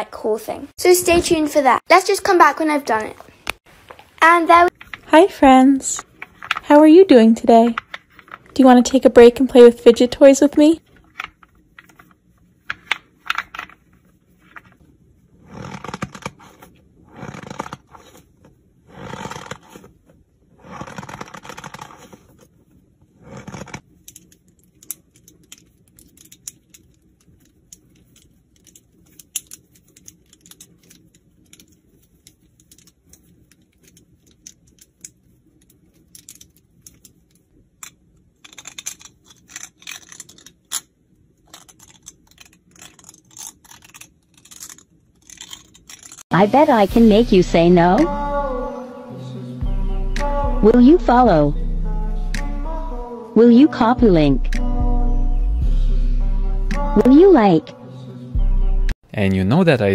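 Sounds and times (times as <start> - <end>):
fidget toys crinkling squeezes: 23.3 - 46.3.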